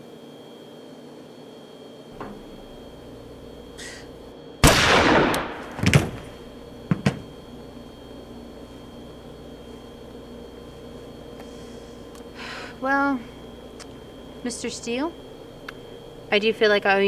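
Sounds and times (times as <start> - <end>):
gunshot: 4.6 - 6.2.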